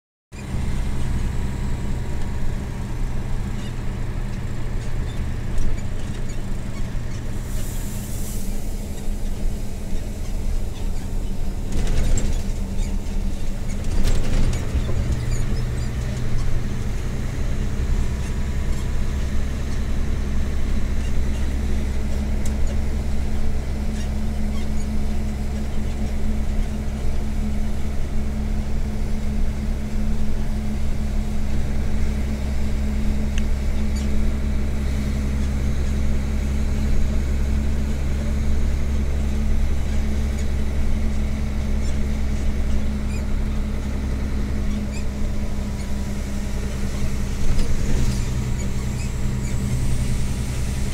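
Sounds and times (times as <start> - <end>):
road and cab noise: 0.3 - 50.9
truck diesel engine drone: 0.3 - 50.9.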